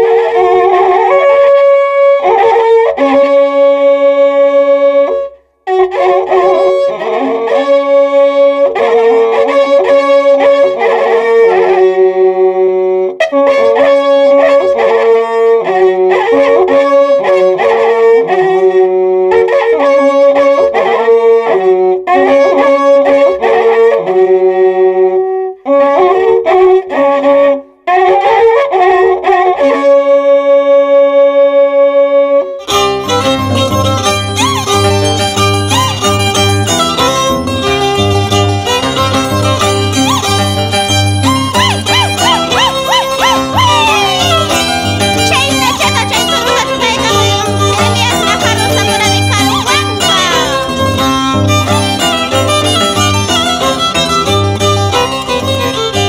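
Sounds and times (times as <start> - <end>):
two violins playing in harmony: 32.6 - 56.0.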